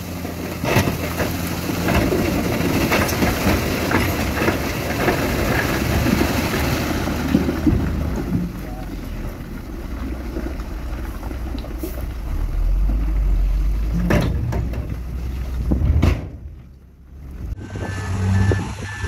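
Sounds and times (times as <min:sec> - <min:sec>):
diesel trucks and machinery rumbling: 0:00.0 - 0:19.0
truck reversing alarm beeping: 0:17.6 - 0:19.0.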